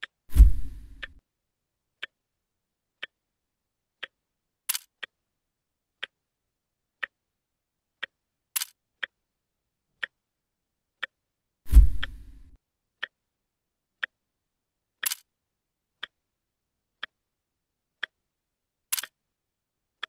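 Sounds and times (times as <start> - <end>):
clock ticking: 0.0 - 1.2, 2.0 - 2.2, 3.0 - 3.2, 4.0 - 5.2, 6.0 - 6.2, 7.0 - 7.2, 8.0 - 9.2, 10.0 - 10.2, 11.0 - 11.2, 11.8 - 13.2, 14.0 - 14.2, 15.0 - 15.3, 16.0 - 16.2, 17.0 - 17.2, 18.0 - 18.2, 18.9 - 19.2
low thump: 0.3 - 1.0, 11.7 - 12.4.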